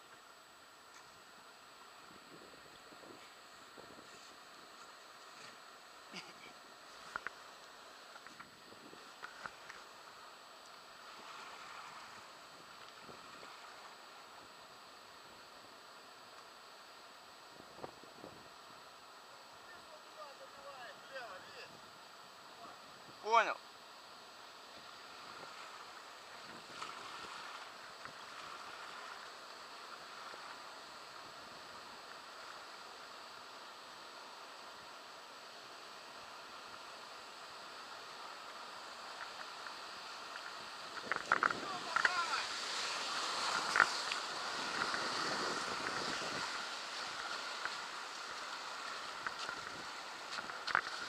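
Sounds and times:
river water rushing: 23.3 - 51.0.

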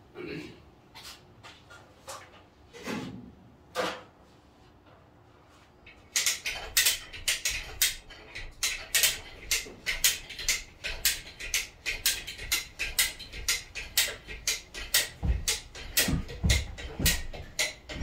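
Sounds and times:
metallic ratcheting clicks of hoist: 6.1 - 18.0.

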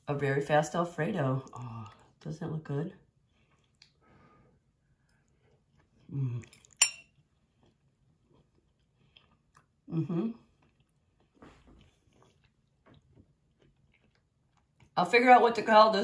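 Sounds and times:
fork clinking on plate: 6.6 - 7.1
person humming: 9.9 - 10.4.

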